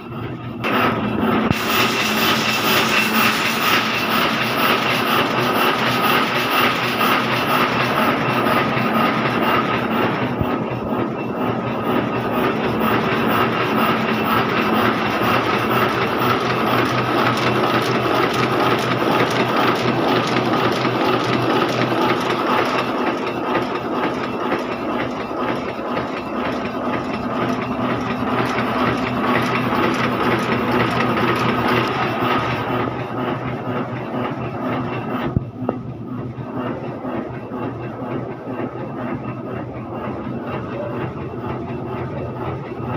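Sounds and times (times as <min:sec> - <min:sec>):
constant machine hum: 0:00.0 - 0:42.9
printing press clatter: 0:00.6 - 0:42.9.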